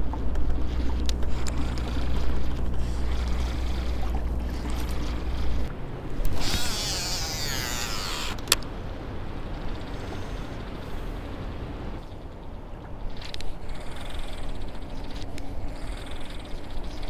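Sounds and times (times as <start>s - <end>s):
fishing reel spool whirring: 0.0s - 8.6s, 9.2s - 11.2s, 13.0s - 17.0s
low steady hum: 0.0s - 17.0s.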